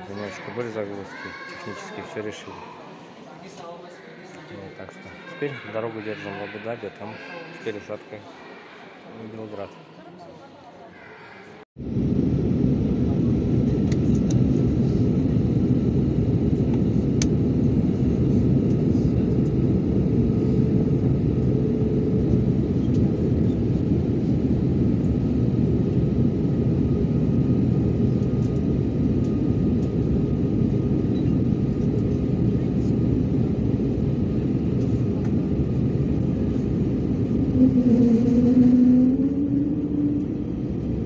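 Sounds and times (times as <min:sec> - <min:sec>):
airliner cabin engine rumble: 0:11.8 - 0:41.0.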